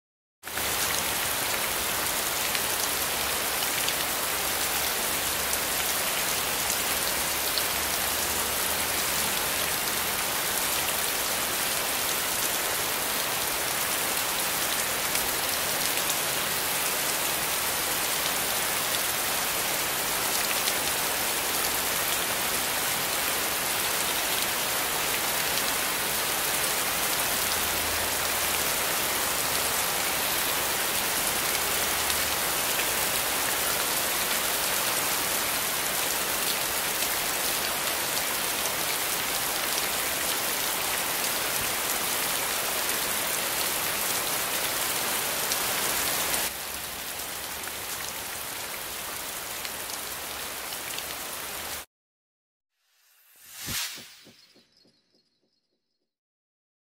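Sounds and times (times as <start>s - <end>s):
falling water hiss: 53.0s - 54.4s.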